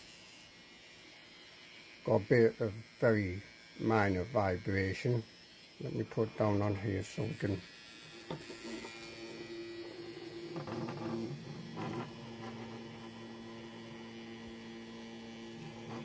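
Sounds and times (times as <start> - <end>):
hair trimmer humming: 0.0 - 16.0.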